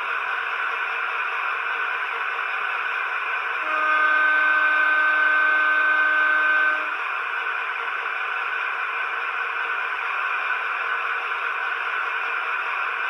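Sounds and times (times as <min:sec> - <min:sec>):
model train diesel horn: 0:03.6 - 0:07.0.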